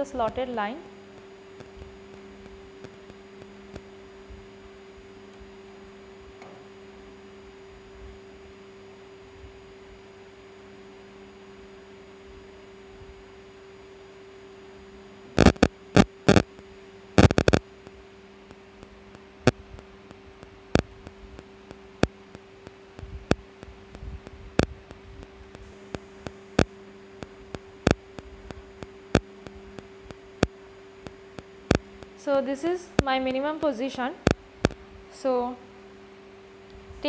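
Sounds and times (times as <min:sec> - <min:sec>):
low electrical hum: 0:00.0 - 0:37.0
sharp clicks: 0:15.4 - 0:16.6, 0:17.2 - 0:17.6, 0:22.0 - 0:32.1.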